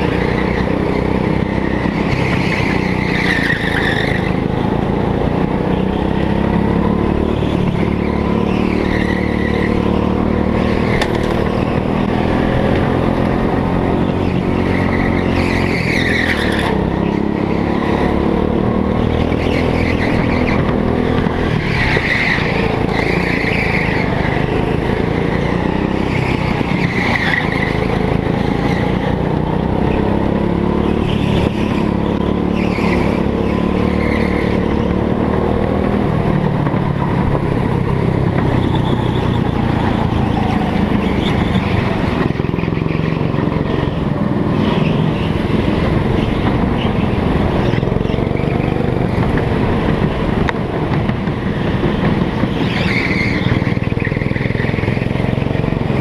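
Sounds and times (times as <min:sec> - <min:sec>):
go-kart engine revving: 0:00.0 - 0:56.0
tyres squealing: 0:19.0 - 0:29.2, 0:52.1 - 0:55.0.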